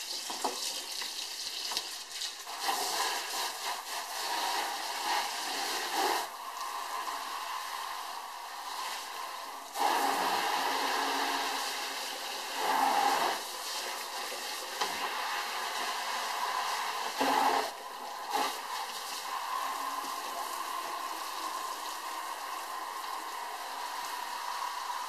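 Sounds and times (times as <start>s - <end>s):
faucet sprayer spraying into bucket: 0.0s - 25.0s
water running into sink: 0.0s - 25.0s.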